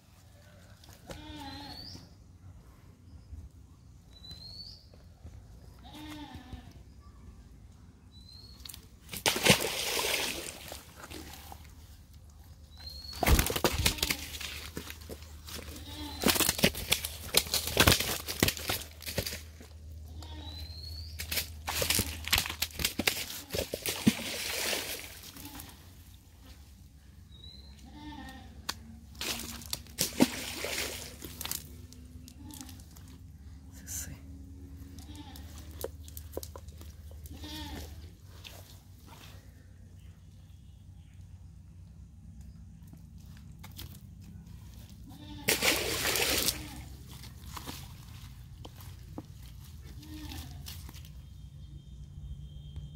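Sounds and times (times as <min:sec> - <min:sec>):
fish thrashing in wet net: 0:09.0 - 0:11.7, 0:12.9 - 0:19.7, 0:21.2 - 0:25.4, 0:29.1 - 0:31.8, 0:45.5 - 0:48.4.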